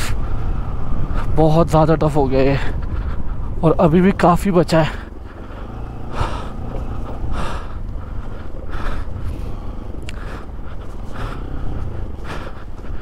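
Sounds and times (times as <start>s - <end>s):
person breathing heavily: 0.0s - 1.4s, 2.5s - 3.7s, 4.8s - 13.0s
motorcycle engine rumble: 0.0s - 13.0s.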